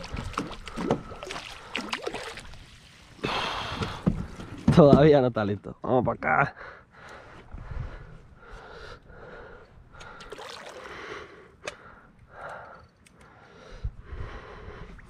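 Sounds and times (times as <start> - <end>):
man breathing heavily: 3.2 - 4.7, 6.5 - 15.0.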